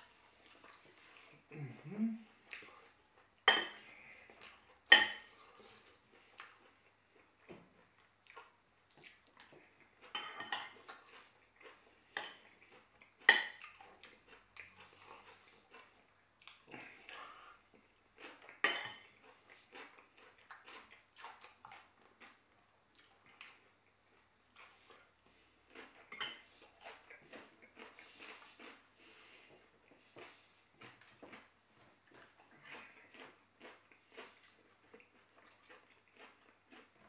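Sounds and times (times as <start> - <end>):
fork clinking on ceramic bowl: 3.5 - 3.8, 4.9 - 5.3, 10.1 - 10.8, 18.6 - 19.0.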